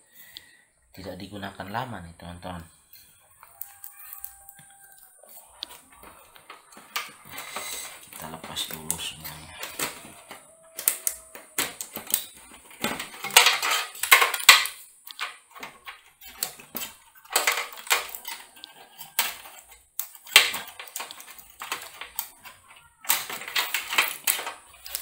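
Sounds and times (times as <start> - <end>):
plugs clicking and rattling against metal: 5.6 - 25.0.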